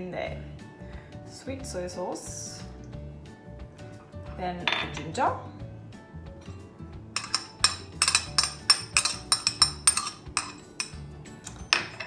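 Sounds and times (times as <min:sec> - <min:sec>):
spoon tapping against a bowl: 0:07.2 - 0:11.0.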